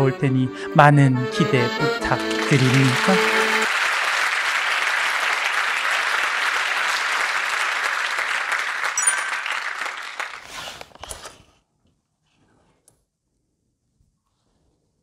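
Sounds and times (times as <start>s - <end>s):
audience applauding: 1.7s - 10.5s
high ping: 9.0s - 9.6s.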